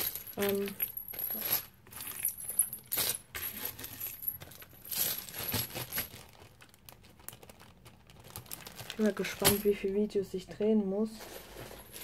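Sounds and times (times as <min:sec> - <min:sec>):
small pendants and magnets clinking: 0:00.0 - 0:06.1, 0:08.9 - 0:10.6.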